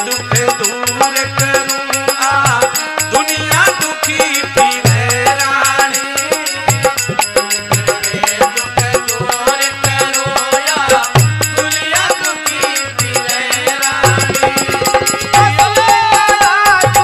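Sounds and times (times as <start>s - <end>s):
hand drums beating: 0.0s - 17.0s.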